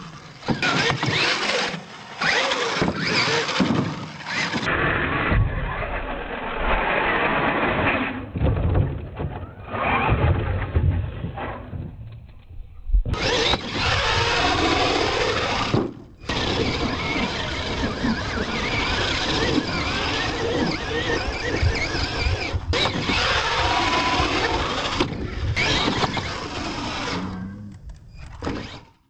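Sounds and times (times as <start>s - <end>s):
toy truck motor whining: 0.0s - 4.8s, 13.2s - 29.0s.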